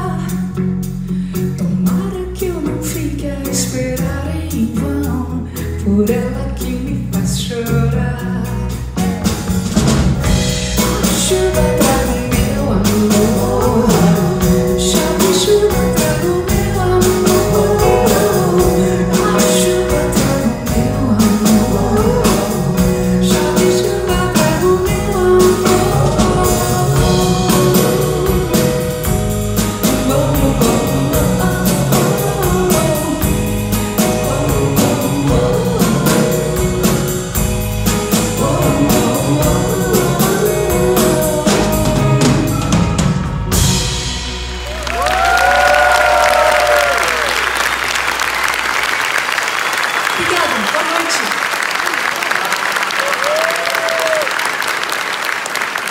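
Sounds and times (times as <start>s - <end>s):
woman singing lead: 0.0s - 9.0s, 10.7s - 42.8s
guitars: 0.0s - 48.1s
drum kit: 0.0s - 49.4s.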